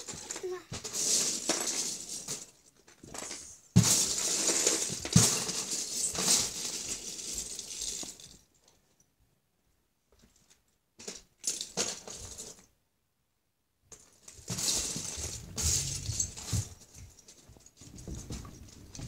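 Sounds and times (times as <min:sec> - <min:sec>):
plastic bricks clattering: 0:00.0 - 0:08.4, 0:14.0 - 0:16.6.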